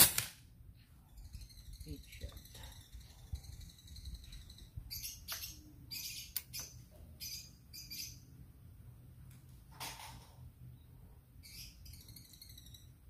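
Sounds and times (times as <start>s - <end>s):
small birds chirping: 0.8s - 8.5s, 10.6s - 13.0s.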